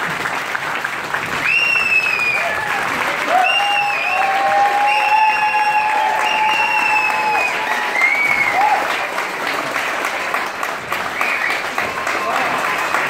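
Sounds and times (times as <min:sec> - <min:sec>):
audience applauding: 0:00.0 - 0:13.0.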